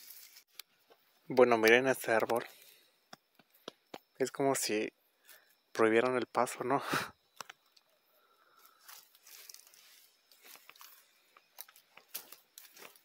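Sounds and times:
footsteps in dry leaves: 0.0s - 0.5s, 8.6s - 13.0s.

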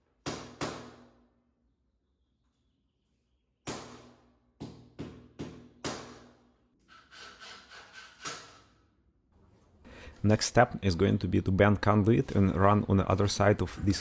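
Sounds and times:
hammer striking concrete: 0.2s - 1.2s, 3.6s - 6.4s.

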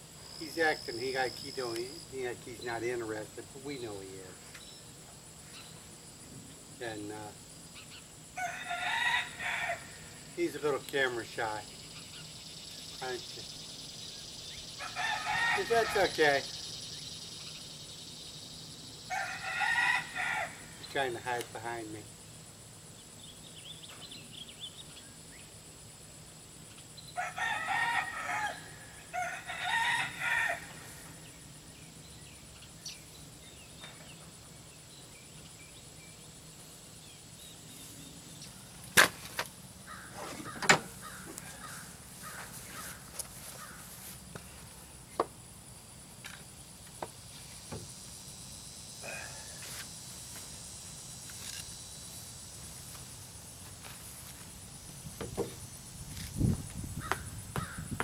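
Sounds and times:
rooster crowing: 8.4s - 10.2s, 14.8s - 16.1s, 19.1s - 20.8s, 27.2s - 31.1s
sharp knocks: 55.2s - 55.6s.

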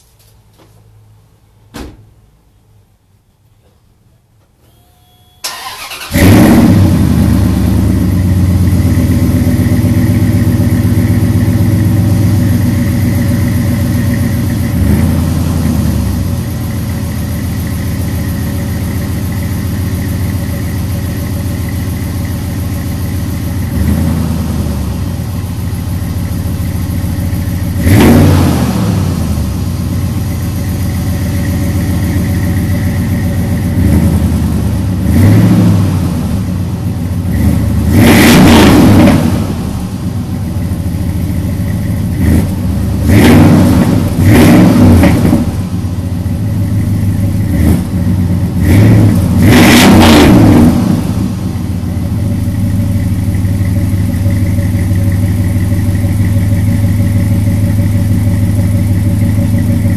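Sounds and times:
engine throttle blips: 4.6s - 59.9s
engine cranking and starting: 5.4s - 7.0s
truck engine idling: 7.1s - 28.0s, 29.1s - 35.2s, 39.4s - 43.2s, 45.4s - 49.5s, 51.2s - 59.9s.

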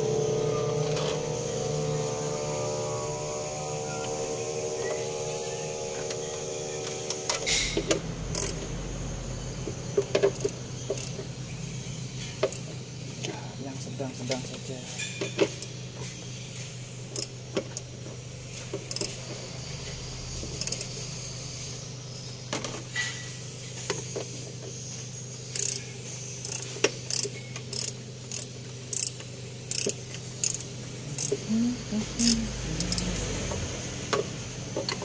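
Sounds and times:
steady low hum: 0.0s - 22.5s, 27.9s - 34.8s
wrench clicking: 8.3s - 8.6s, 25.6s - 25.8s, 26.4s - 31.4s, 32.2s - 33.1s.

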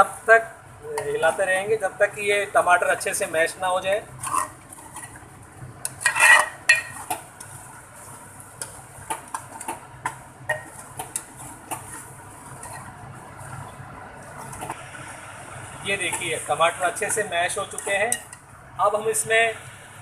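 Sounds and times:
metal ladle scraping a pot: 4.1s - 5.2s, 5.8s - 8.2s, 10.5s - 13.0s, 17.0s - 18.4s.

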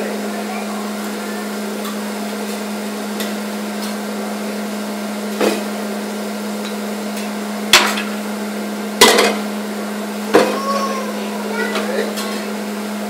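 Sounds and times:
metal spatulas clanking on griddle: 9.0s - 9.4s.

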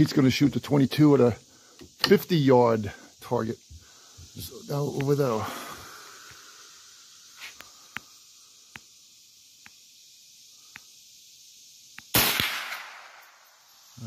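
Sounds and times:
faint clicks: 7.5s - 8.1s, 10.7s - 10.9s
rifle shot with echo: 12.1s - 13.2s.

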